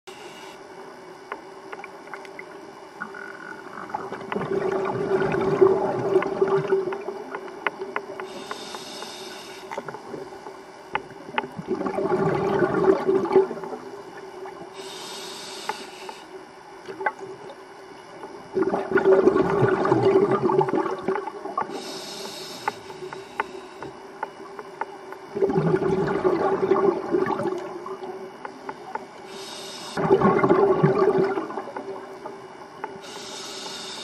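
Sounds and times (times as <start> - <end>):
regulator inhale hiss: 0.1 - 0.9, 8.1 - 10.3, 14.7 - 16.5, 21.6 - 24.3, 29.2 - 30.0, 32.8 - 34.0
faint crackles: 0.1 - 34.0
exhaled bubbles rumbling: 2.0 - 8.2, 9.7 - 14.8, 16.8 - 21.8, 25.3 - 28.5, 30.0 - 32.7.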